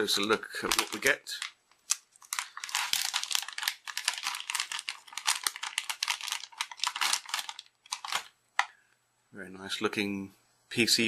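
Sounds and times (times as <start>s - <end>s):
plastic bag crinkling: 0.2s - 8.7s.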